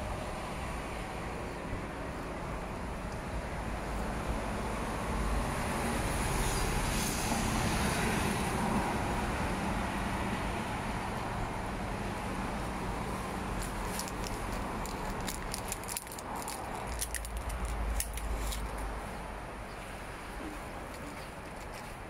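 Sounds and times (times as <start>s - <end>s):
road traffic: 0.0s - 22.0s.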